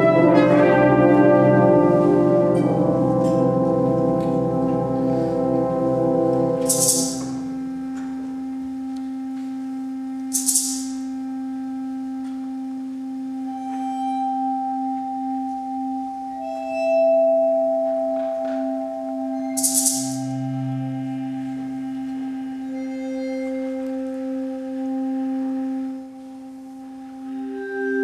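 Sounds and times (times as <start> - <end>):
wind ensemble playing: 0.0 - 10.3, 11.1 - 28.0
percussion rattles: 6.6 - 7.5, 10.3 - 11.0, 19.5 - 20.4.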